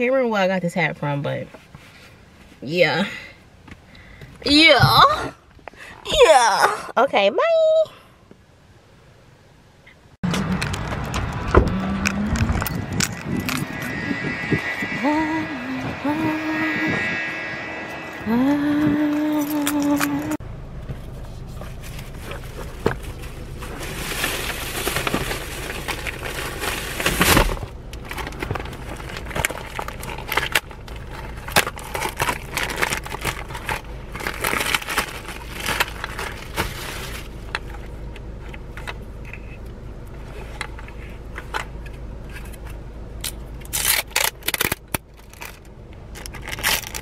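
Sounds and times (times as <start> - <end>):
low hum: 8.7 - 47.0
packaging crinkling: 28.2 - 37.3.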